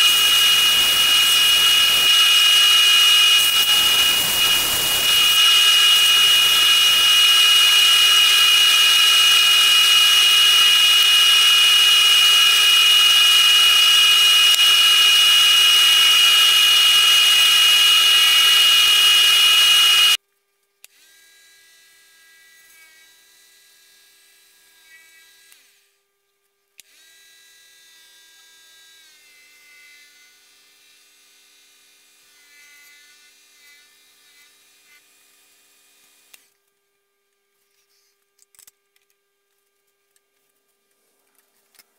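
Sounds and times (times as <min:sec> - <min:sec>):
wood lathe whining: 0:00.0 - 0:20.2.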